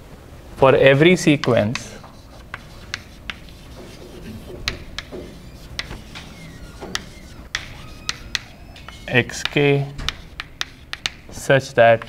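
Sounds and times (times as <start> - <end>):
chalk tapping and scraping on blackboard: 0.9 - 12.0.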